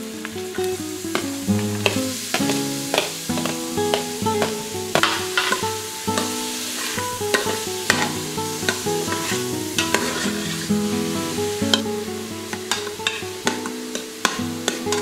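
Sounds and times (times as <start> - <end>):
onions sizzling in hot oil: 0.0 - 15.0
spoon scraping a metal pot: 9.8 - 10.6.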